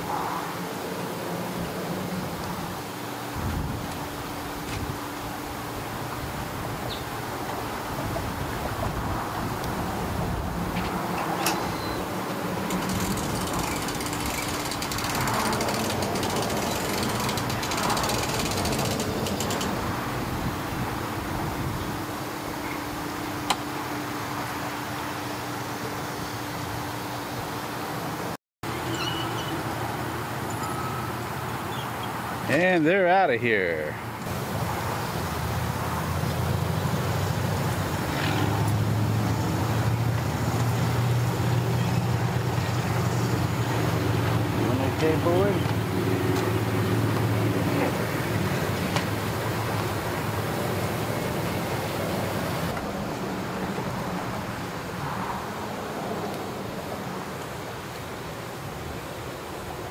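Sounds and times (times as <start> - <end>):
engine humming: 2.3 - 27.4
rapid mechanical clicking: 12.6 - 19.8.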